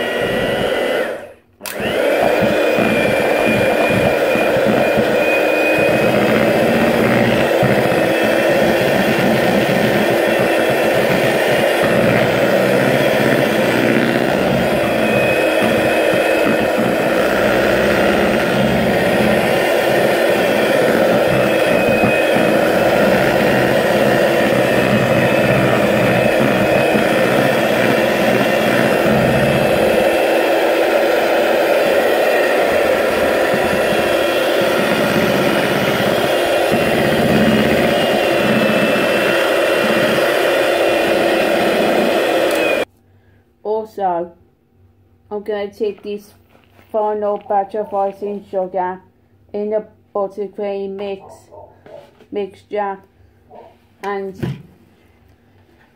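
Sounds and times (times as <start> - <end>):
electric mixer whirring: 0.0 - 42.9.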